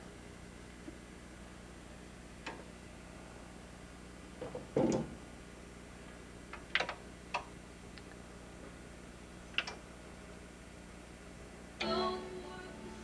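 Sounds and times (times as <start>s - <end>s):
sharp clicks and light knocks: 6.5s - 8.2s, 9.6s - 9.8s.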